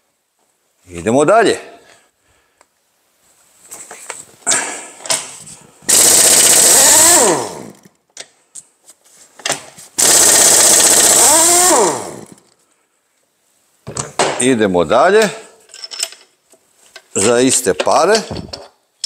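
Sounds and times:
impact wrench rattling: 5.1 - 7.9, 9.5 - 12.5.

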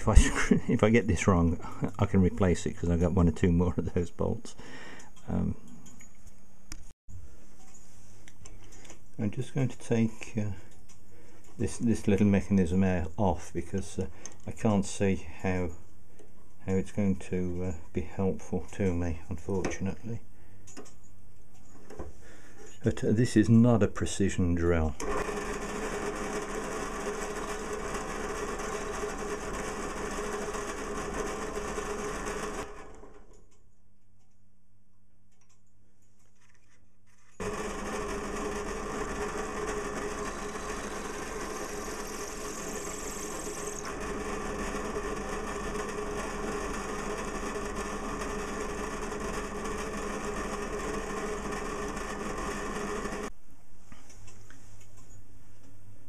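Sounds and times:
bench drill drilling steel: 25.0 - 33.2, 37.4 - 53.3.

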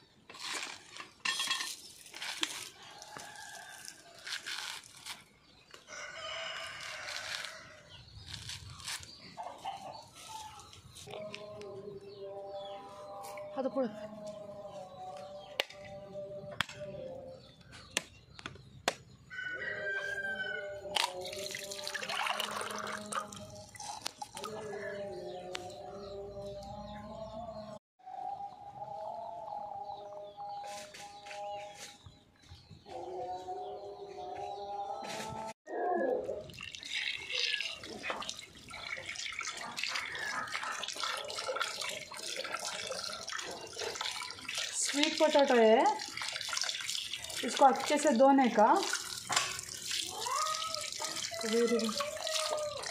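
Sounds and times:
rooster crowing: 5.9 - 7.8, 19.3 - 20.9
water pouring into steel tumbler: 36.5 - 48.1
tap water splashing into pot: 48.8 - 52.9.

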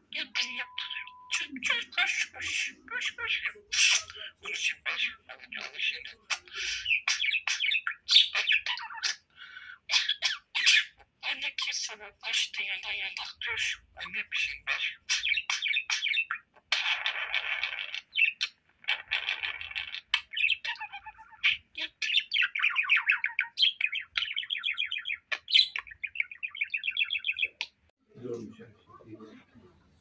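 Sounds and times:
budgerigar warbling and chattering: 0.1 - 27.9.

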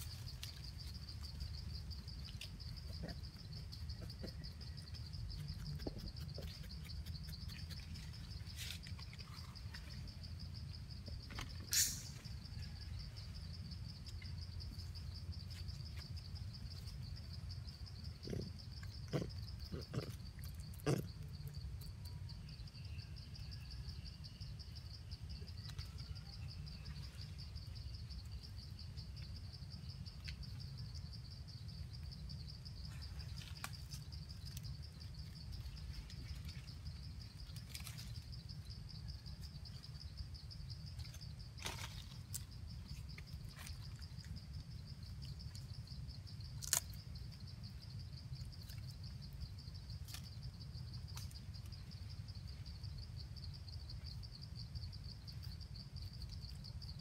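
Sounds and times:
insect chorus trilling: 0.0 - 57.0.

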